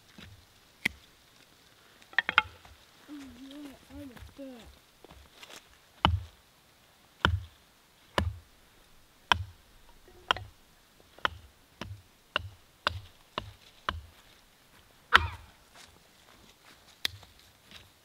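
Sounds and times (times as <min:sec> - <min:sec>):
wooden stick knocks: 0:09.3 - 0:10.5.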